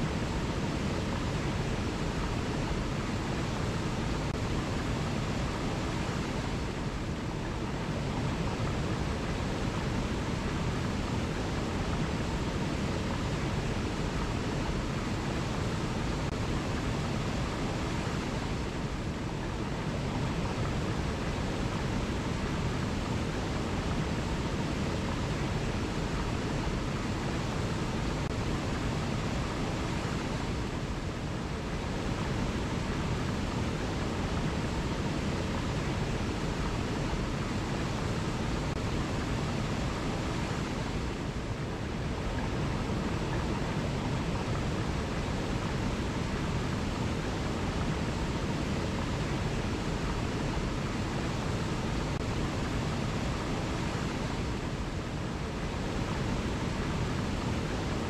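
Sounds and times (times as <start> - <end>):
waterfall rushing over rocks: 0.0 - 58.0.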